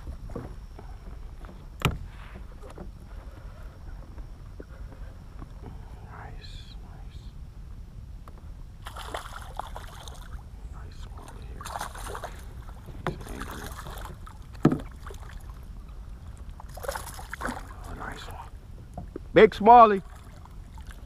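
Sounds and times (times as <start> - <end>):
fish splashing at water surface: 8.8 - 10.4.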